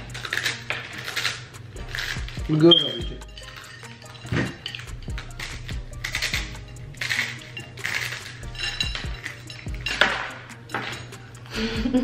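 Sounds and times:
dry noodles crunching when chewed: 0.0 - 2.5, 4.8 - 9.5
background music: 0.0 - 12.0.

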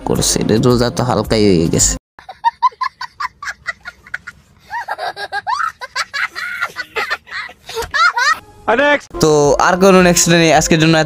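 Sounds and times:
young boy laughing: 2.2 - 8.4.

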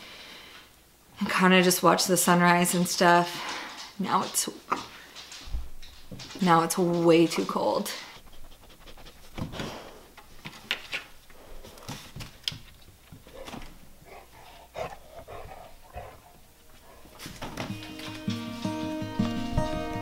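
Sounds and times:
pet breathing: 1.8 - 5.5, 6.3 - 10.2, 14.0 - 17.3
claws tapping on tiled floor: 2.9 - 7.8, 11.8 - 13.7.

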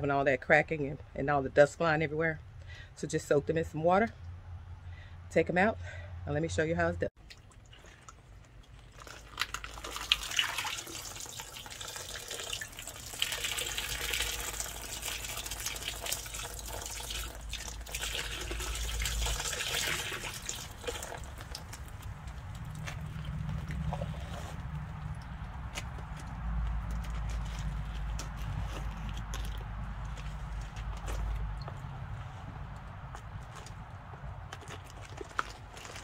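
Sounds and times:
water dripping and splashing: 7.2 - 32.0.

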